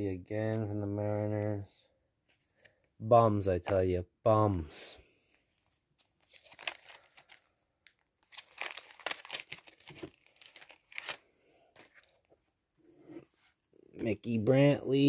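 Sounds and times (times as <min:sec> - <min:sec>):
cards and wrappers rustling: 0:05.3 - 0:14.3.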